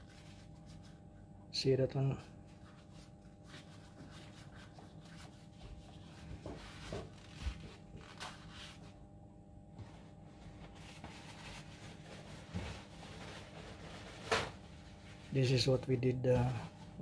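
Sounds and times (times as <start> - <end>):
tissue rubbing on filter: 0.0 - 1.2, 2.2 - 9.1, 9.7 - 15.9
low background hum: 0.0 - 17.0.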